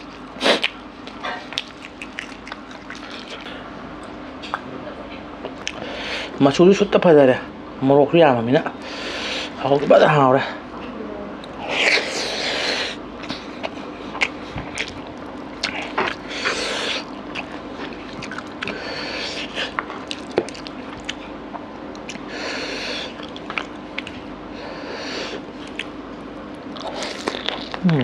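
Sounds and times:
wet squishing of food by hand: 0.0s - 4.7s.

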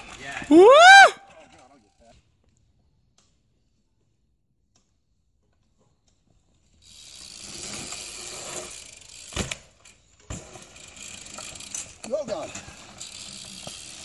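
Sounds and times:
tyre noise on dirt: 6.8s - 14.0s.

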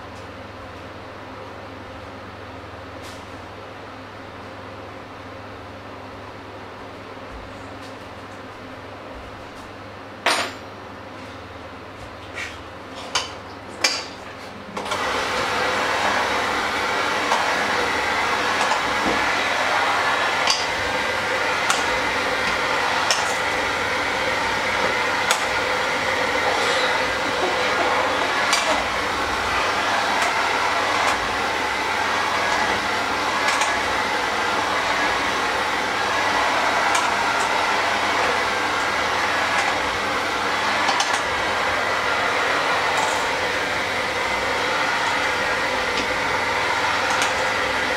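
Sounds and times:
electric mixer running: 14.8s - 47.9s.

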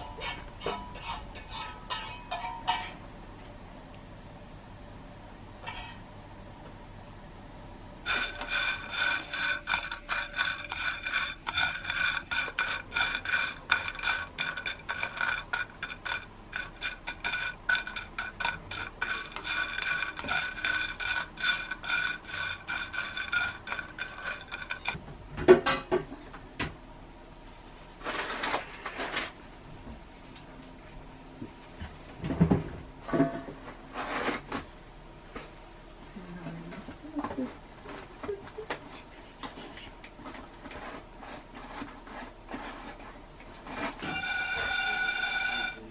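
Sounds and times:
scraping against a metal bowl: 0.0s - 3.0s, 8.1s - 25.0s, 33.2s - 34.6s, 39.4s - 45.9s
loud clatter: 8.1s - 25.0s.

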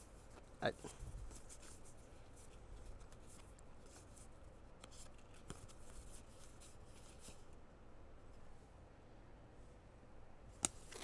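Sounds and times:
paper cards flicking and sliding: 0.2s - 7.5s.

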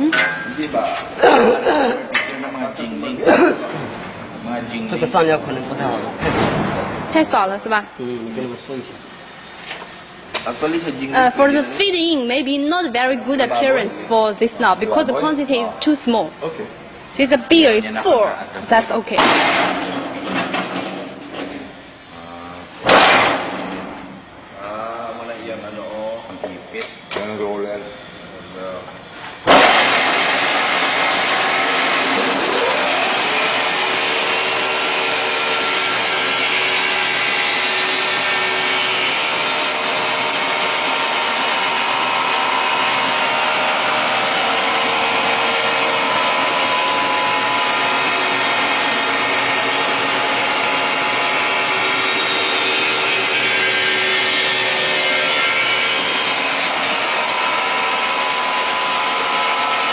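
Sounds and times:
sharpening machine grinding whirr: 29.5s - 59.9s.

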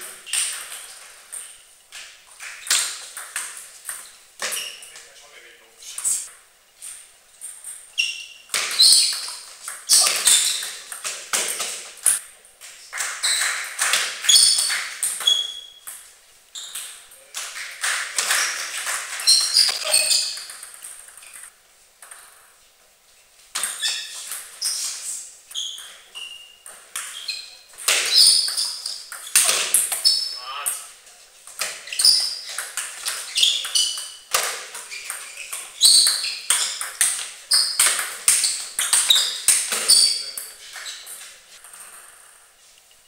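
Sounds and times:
table tennis ball pinging: 7.4s - 12.2s, 13.0s - 22.5s, 25.5s - 30.3s, 31.5s - 42.4s.

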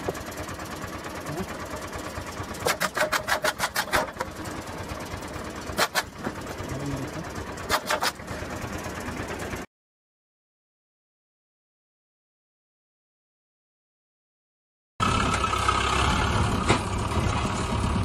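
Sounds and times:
car noise: 15.0s - 18.0s.

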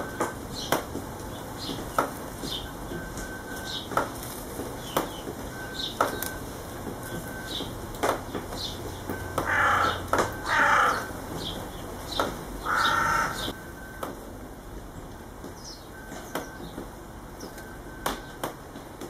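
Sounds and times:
harsh bird calls: 0.0s - 4.0s, 4.7s - 6.4s, 7.1s - 13.6s
sparrows chirping: 0.0s - 13.6s, 14.9s - 18.4s.

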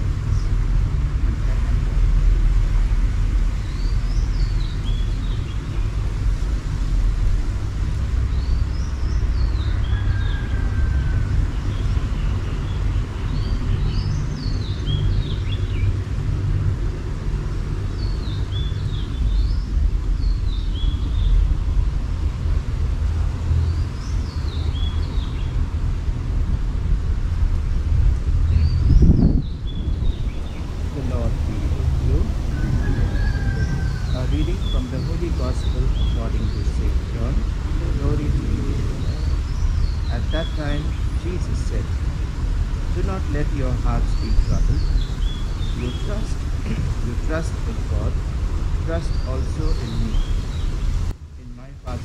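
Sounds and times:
steady low rumble: 0.0s - 52.0s
bird chirping: 3.5s - 6.1s, 8.2s - 16.2s, 17.8s - 21.6s, 28.5s - 42.0s, 42.8s - 52.0s.

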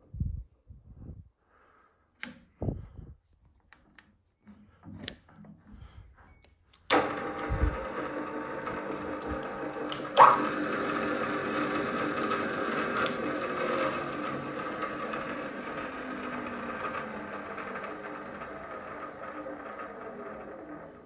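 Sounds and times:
drill press motor humming: 6.9s - 21.0s.

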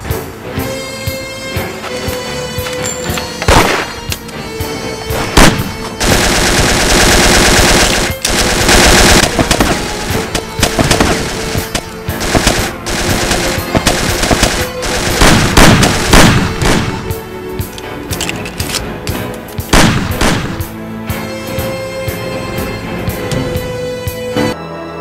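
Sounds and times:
background music: 0.0s - 25.0s
rapid gunshots: 5.2s - 17.2s, 19.7s - 20.7s.

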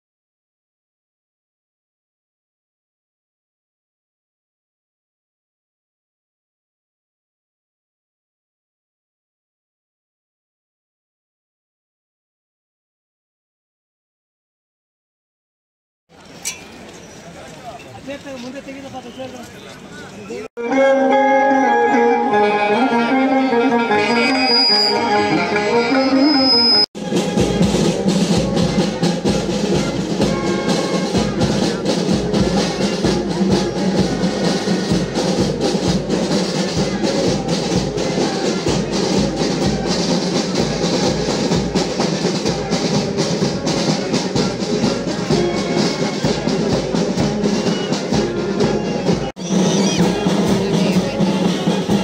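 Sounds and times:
marching band: 16.2s - 52.0s
sitar melody: 20.6s - 26.8s.

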